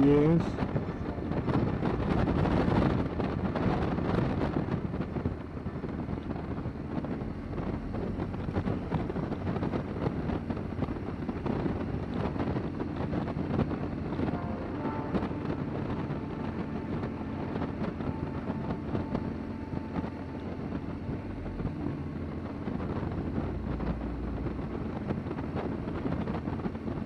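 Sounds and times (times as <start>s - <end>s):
wind rushing over microphone: 0.0s - 27.0s.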